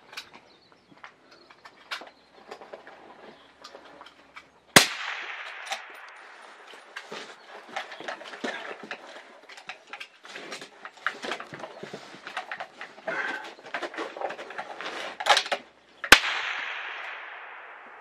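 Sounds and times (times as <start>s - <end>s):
rifle handling clicks and rustling: 0.0s - 4.7s, 5.3s - 17.4s
rifle shot echoing: 4.8s - 7.0s, 16.1s - 18.0s.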